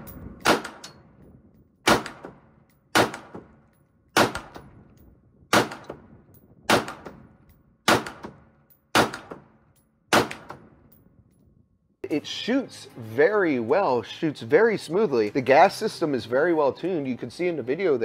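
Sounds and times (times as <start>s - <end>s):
rifle shots echoing: 0.4s - 1.0s, 1.8s - 4.7s, 5.5s - 6.1s, 6.7s - 7.2s, 7.9s - 10.8s.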